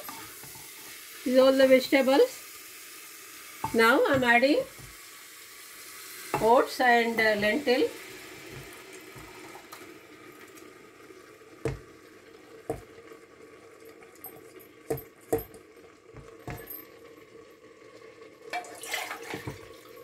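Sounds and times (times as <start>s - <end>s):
vegetables sizzling: 0.0s - 13.8s.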